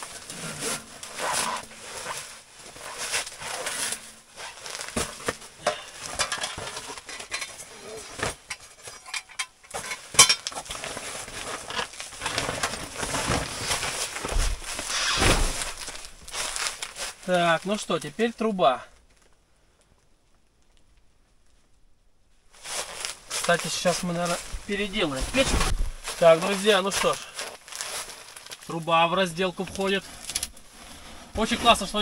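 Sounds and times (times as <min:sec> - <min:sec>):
rustling of clothing: 0:00.0 - 0:19.4, 0:22.3 - 0:32.0
metal clinks and knocks: 0:05.0 - 0:07.7, 0:08.3 - 0:10.7.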